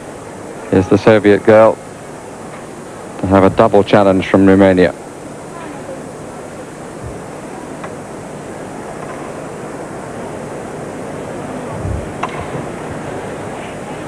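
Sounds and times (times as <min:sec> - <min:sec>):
crowd murmur: 0:04.1 - 0:14.0.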